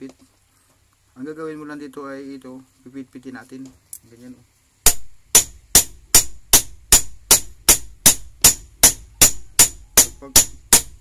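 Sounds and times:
hammer striking metal: 0:04.9 - 0:11.0.

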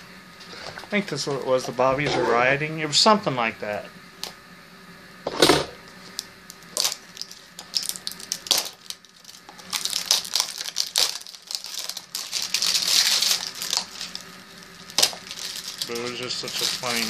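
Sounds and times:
foil bag crinkling and tearing: 0:06.5 - 0:17.0.

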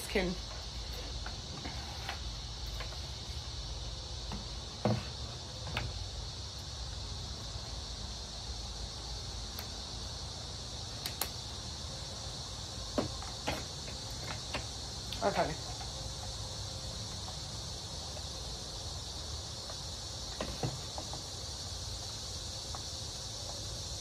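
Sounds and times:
high insect drone: 0:00.0 - 0:24.0.

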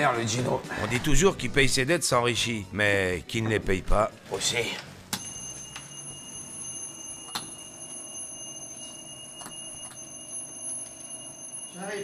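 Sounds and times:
doorbell ringing steady high tone: 0:05.2 - 0:12.0.

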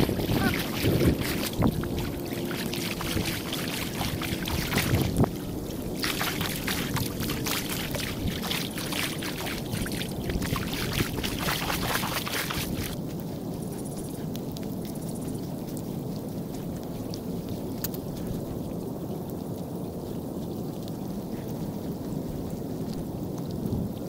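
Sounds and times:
water splashes and drop hits: 0:00.0 - 0:13.0
rain: 0:00.0 - 0:24.0
wind on microphone: 0:00.0 - 0:24.0.

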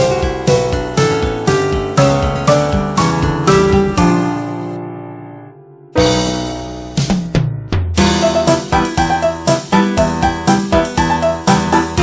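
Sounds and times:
fast steady beat: 0:00.5 - 0:04.3, 0:06.2 - 0:12.0
drum hits: 0:01.2 - 0:04.5, 0:06.0 - 0:09.5
chord struck: 0:03.2 - 0:08.8.

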